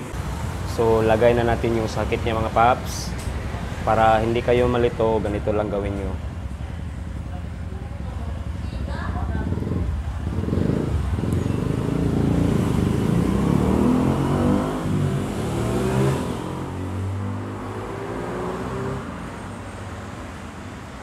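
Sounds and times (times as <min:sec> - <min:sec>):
vehicle engine passing by: 0:08.6 - 0:20.2.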